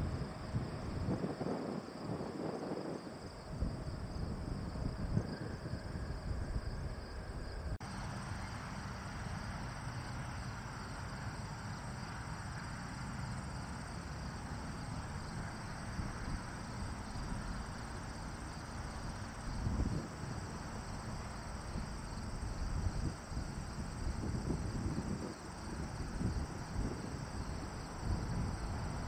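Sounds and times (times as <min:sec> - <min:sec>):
wind on microphone: 0:00.0 - 0:07.8, 0:15.8 - 0:29.0
insects chirping: 0:00.0 - 0:29.0.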